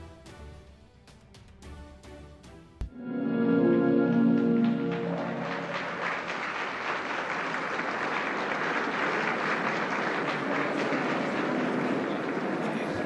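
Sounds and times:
held music chord: 2.9 - 6.5
crowd applauding: 4.0 - 13.0.

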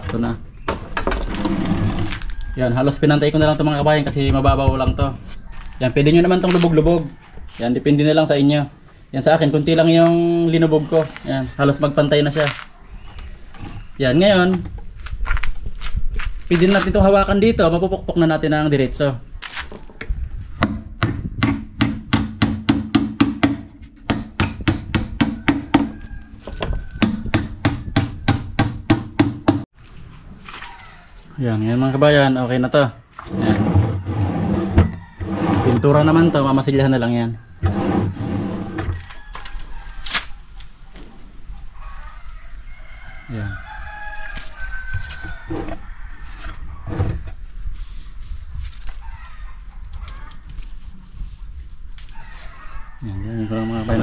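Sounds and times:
rooster crowing: 2.0 - 3.6, 25.2 - 27.4, 34.0 - 37.7, 38.6 - 40.4, 41.8 - 46.8, 52.1 - 54.0
dull knocks: 3.4 - 5.2, 20.6 - 29.6.

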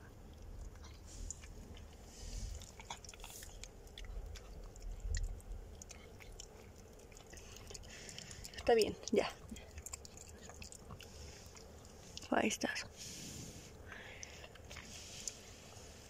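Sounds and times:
low rumble of handling: 0.0 - 16.0
dog licking wet smacks: 0.2 - 12.3.

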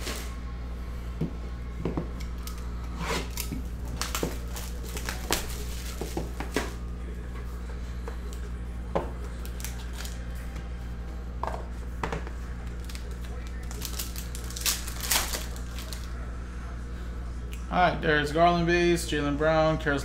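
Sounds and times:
steady low hum: 0.0 - 20.0
cardboard and plastic rustling: 3.2 - 6.8, 12.6 - 16.1.

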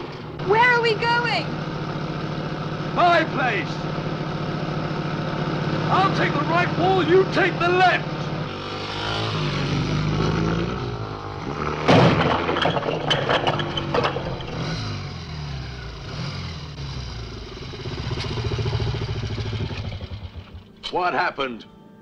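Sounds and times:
motorcycle engines running: 0.0 - 20.9
motorcycle crashing through wall: 8.5 - 20.7
bricks clattering down: 11.6 - 14.6.

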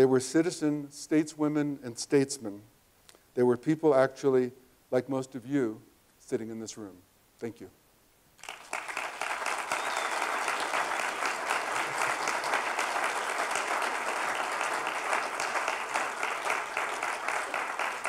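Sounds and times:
audience applauding: 8.4 - 18.0.

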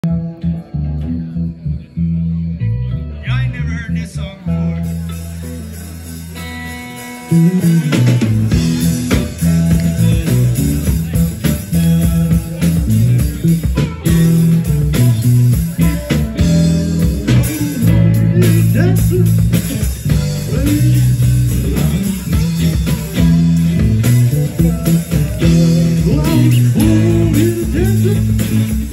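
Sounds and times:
live rock band playing: 0.0 - 28.9.

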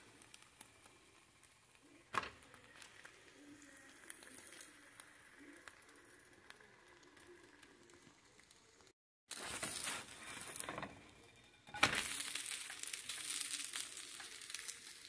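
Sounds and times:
omelet sizzling in a pan: 0.0 - 15.0.

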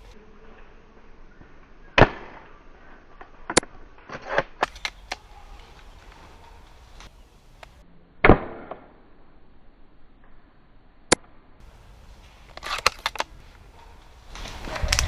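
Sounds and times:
airsoft rifle shot crack: 2.0 - 2.6, 8.2 - 9.1.

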